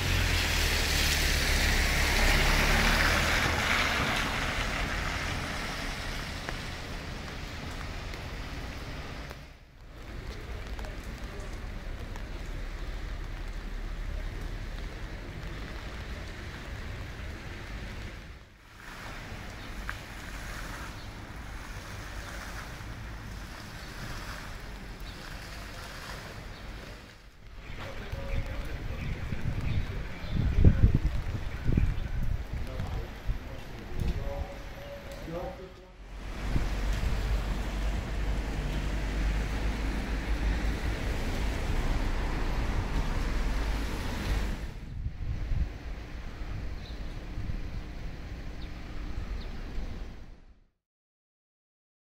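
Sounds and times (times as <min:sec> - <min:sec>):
tyres hissing through water: 0:00.0 - 0:06.9, 0:18.6 - 0:27.2
rain hissing: 0:00.0 - 0:50.3
falling water hissing: 0:18.6 - 0:27.1, 0:36.1 - 0:44.8
wind buffeting microphone: 0:27.5 - 0:34.8, 0:36.2 - 0:49.9.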